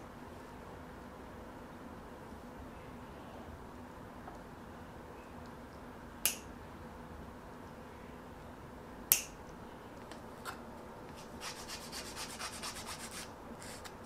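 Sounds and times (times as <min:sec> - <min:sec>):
nail clipper snapping: 0:06.2 - 0:06.5, 0:09.1 - 0:09.4
nail file rasping: 0:11.4 - 0:13.9.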